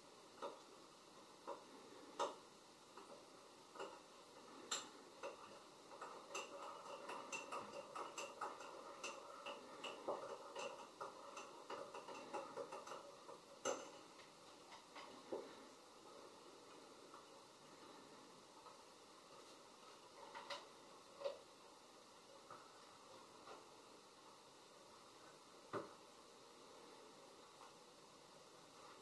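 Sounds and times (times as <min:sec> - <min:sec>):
faint clicks and light taps: 0:00.3 - 0:00.8, 0:01.4 - 0:21.5.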